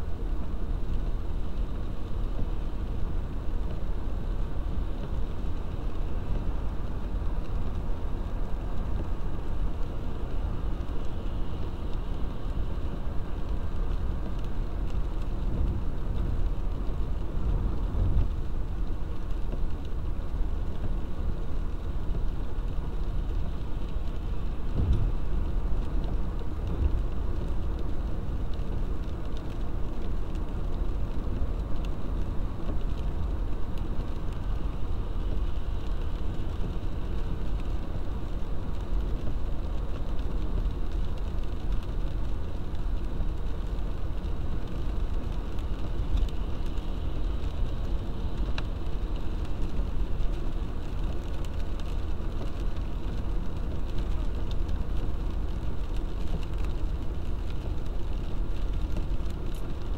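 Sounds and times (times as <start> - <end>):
car engine and tyre noise: 0.0 - 59.9
rain on a windscreen: 0.0 - 59.9.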